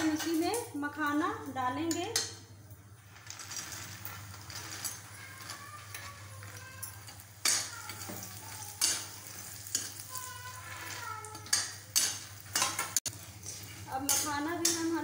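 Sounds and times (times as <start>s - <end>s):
seeds sizzling in hot ghee: 2.8s - 15.0s
metallic clatters against pan: 3.2s - 15.0s.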